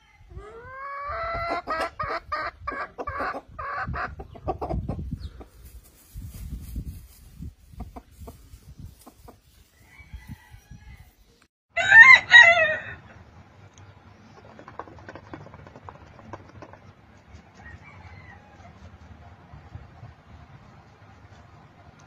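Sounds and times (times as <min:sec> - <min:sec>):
faint chicken clucks: 0:00.0 - 0:05.7, 0:13.0 - 0:19.8
rooster crowing: 0:09.8 - 0:13.2, 0:17.6 - 0:18.8.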